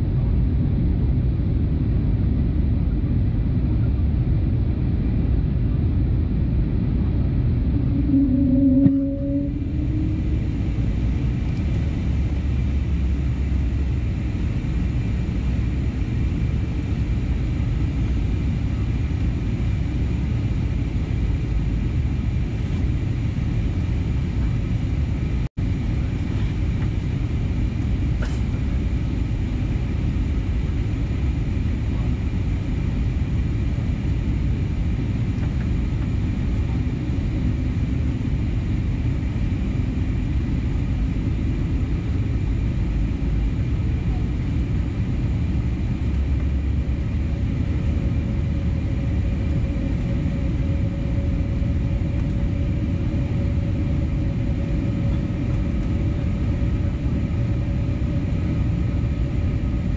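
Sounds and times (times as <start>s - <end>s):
engine and airflow rumble: 0.0s - 59.9s
faint high steady tones: 7.6s - 12.0s.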